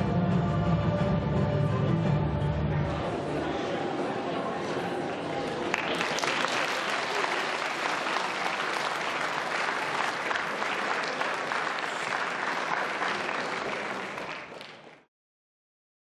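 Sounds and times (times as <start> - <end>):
audience applauding: 5.1 - 15.1.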